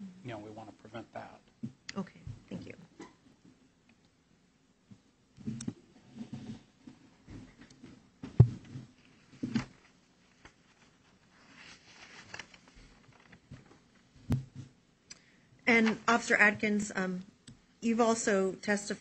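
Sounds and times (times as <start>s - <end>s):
handling knocks and thumps: 6.2s - 9.8s, 13.4s - 14.8s
rustling: 8.4s - 14.6s.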